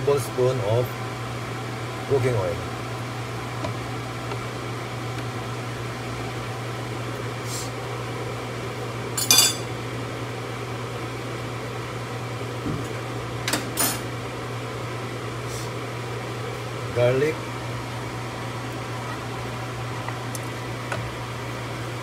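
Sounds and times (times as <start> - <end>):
steady low hum: 0.0 - 22.0
metal kitchenware clinking: 9.2 - 9.7.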